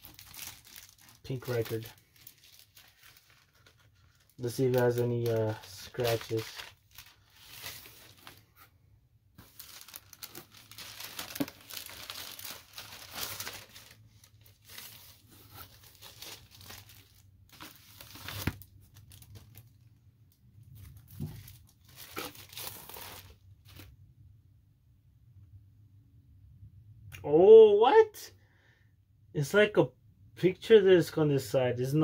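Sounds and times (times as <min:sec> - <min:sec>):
paper sleeve rustling and crinkling: 0:00.0 - 0:08.7, 0:09.4 - 0:19.8, 0:20.7 - 0:23.9.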